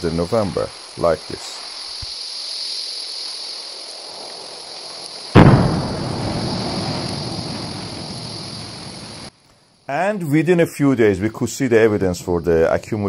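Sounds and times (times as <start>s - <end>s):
volcanic eruption hiss: 0.0s - 9.9s
loud boom: 5.4s - 9.2s.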